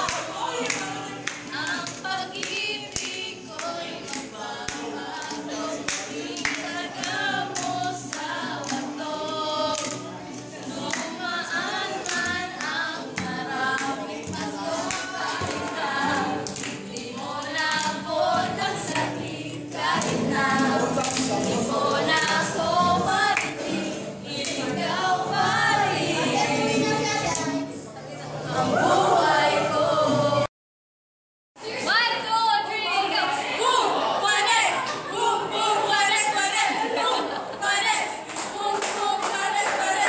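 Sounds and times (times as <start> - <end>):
hand claps: 0.0 - 8.9, 9.7 - 11.2, 12.0 - 15.8, 16.4 - 18.0, 19.9 - 22.5, 23.3 - 23.6
group singing unaccompanied: 0.0 - 30.5, 31.6 - 40.0.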